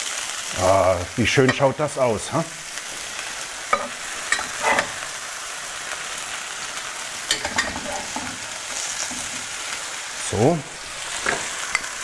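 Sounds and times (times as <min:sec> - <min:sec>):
meat sizzling in oil: 0:00.0 - 0:12.0
metal turner scraping pan: 0:03.7 - 0:05.1, 0:07.3 - 0:09.5.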